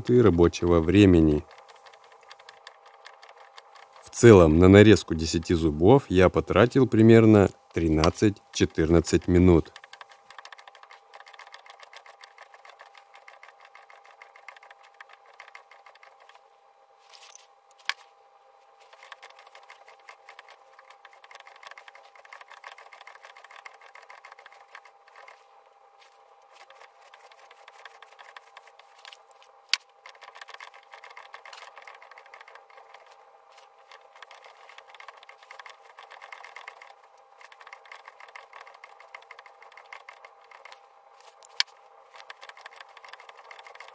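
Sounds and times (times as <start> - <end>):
cutter ticking and scraping: 0.0 - 4.6, 7.9 - 16.4, 18.8 - 25.5, 26.4 - 43.9
faint hum: 0.0 - 43.9.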